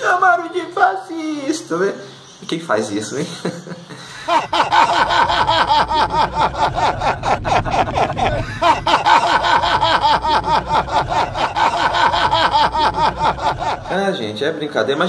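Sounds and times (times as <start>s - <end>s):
man laughing hard: 3.3s - 14.0s.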